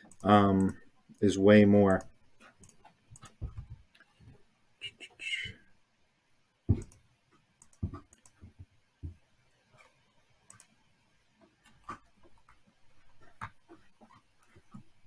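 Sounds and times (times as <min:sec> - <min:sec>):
computer mouse clicking: 0:00.0 - 0:01.3, 0:01.9 - 0:04.1, 0:06.7 - 0:07.0, 0:07.6 - 0:08.5, 0:10.4 - 0:10.8.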